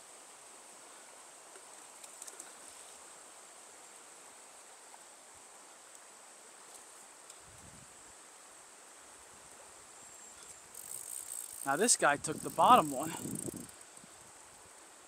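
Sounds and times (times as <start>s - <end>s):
insects droning: 0.0s - 15.0s
faint ticks: 1.5s - 3.0s, 5.8s - 7.7s, 10.3s - 14.6s.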